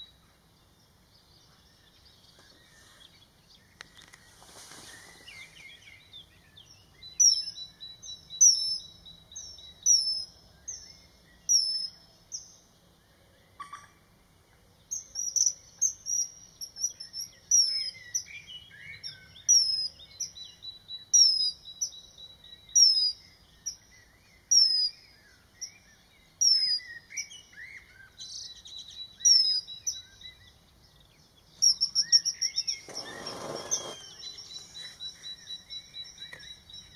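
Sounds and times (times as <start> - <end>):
kingfisher shrill whistled calls: 31.8 - 34.8
bird wings rushing: 32.7 - 34.9.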